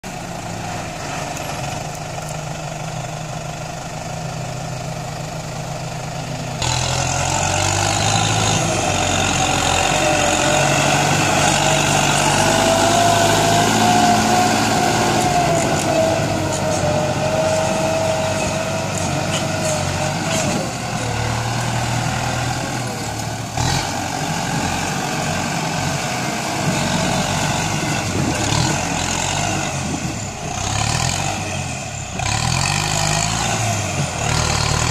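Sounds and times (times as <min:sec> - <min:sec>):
tractor diesel engine running: 0:00.0 - 0:34.9
whining tone: 0:07.3 - 0:29.0.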